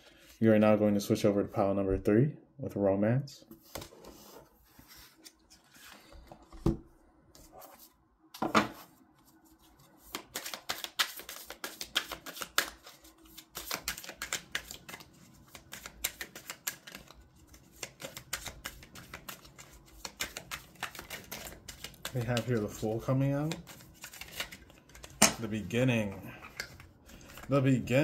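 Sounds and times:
cards being shuffled: 8.7s - 28.0s.

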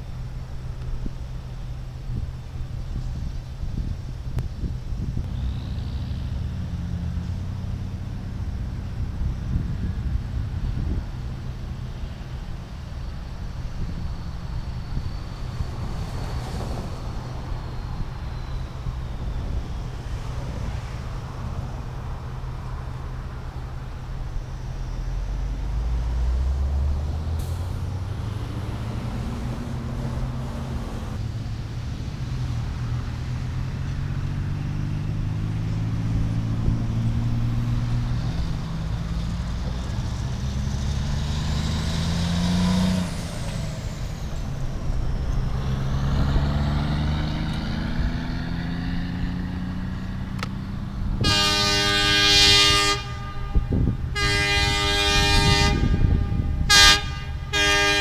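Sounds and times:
diesel truck shifting gears: 0.0s - 58.0s
wind on microphone: 0.9s - 22.8s, 42.0s - 57.5s.

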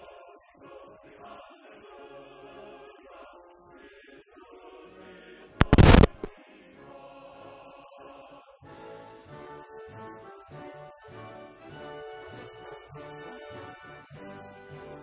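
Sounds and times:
men singing together: 0.0s - 5.6s
crack: 5.6s - 6.3s
faint high whine: 5.6s - 6.3s
very loud blast: 5.6s - 6.3s.

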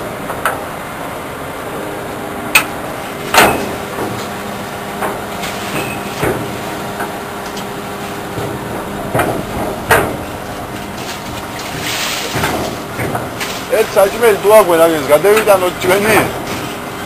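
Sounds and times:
knocks and bangs: 5.0s - 6.6s, 8.3s - 13.6s.

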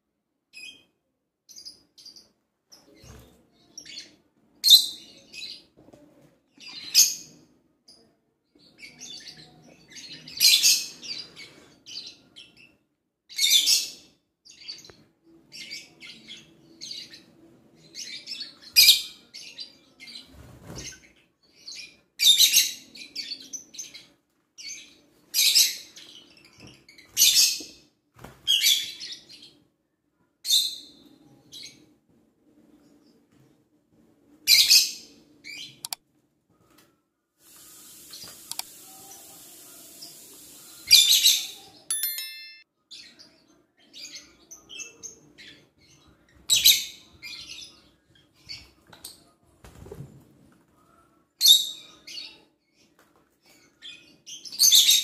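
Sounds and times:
soft bird chirping: 37.6s - 49.4s
loud high-pitched bird chirps: 37.7s - 45.6s, 51.4s - 52.5s, 54.0s - 55.0s.

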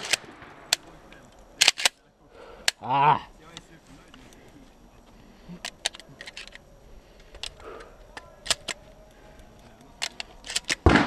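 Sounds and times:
shotgun metallic clicks: 0.0s - 2.0s, 5.6s - 6.6s, 7.2s - 11.0s.

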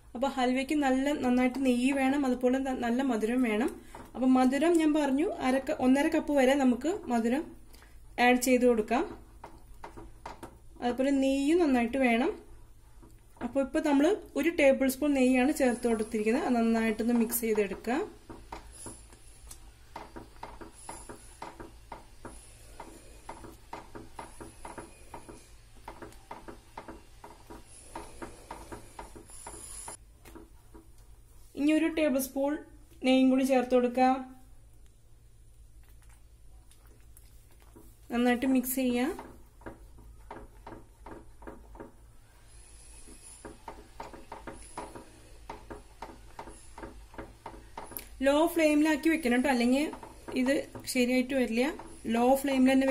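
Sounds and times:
whisk scraping frying pan: 15.5s - 30.0s, 37.8s - 52.9s.

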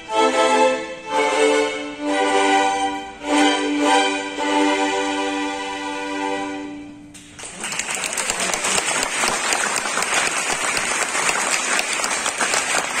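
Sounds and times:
string ensemble chord: 0.0s - 7.1s
audience applause: 7.4s - 13.0s.

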